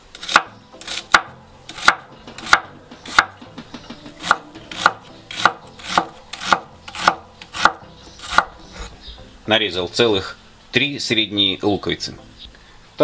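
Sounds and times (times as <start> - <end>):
cleaver chopping on wooden board: 0.2 - 8.8.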